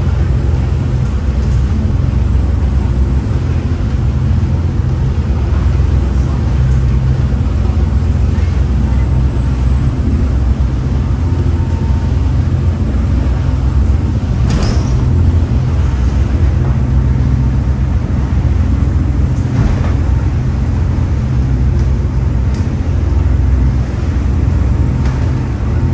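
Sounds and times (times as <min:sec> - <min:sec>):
boat diesel engines droning: 0:00.0 - 0:25.9
hull splashing on waves: 0:00.0 - 0:25.9
rush of wind and water: 0:00.0 - 0:25.9.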